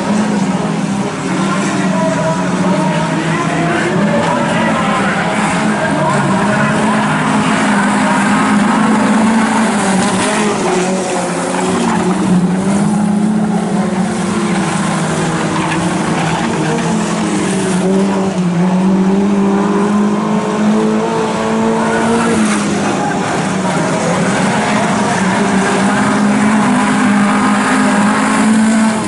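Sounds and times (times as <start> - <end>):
race car engines droning: 0.0 - 29.0.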